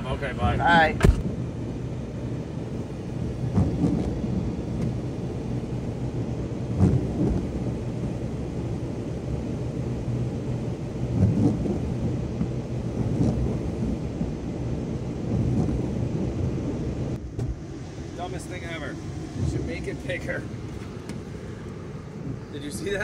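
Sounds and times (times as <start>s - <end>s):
car cabin rumble and hum: 0.0s - 23.0s
dull thumps: 3.5s - 4.2s, 6.8s - 7.5s.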